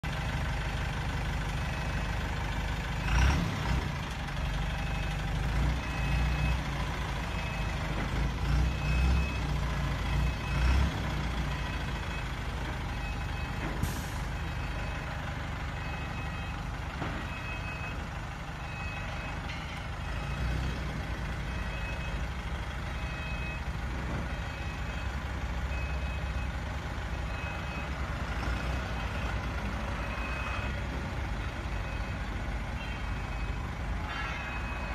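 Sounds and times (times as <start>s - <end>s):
truck engine running: 0.0s - 34.0s
truck reversing alarm beeping: 1.0s - 34.9s.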